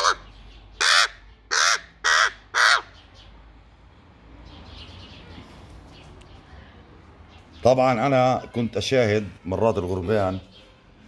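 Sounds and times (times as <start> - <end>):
crow cawing harshly: 0.0 - 0.2, 0.8 - 3.0.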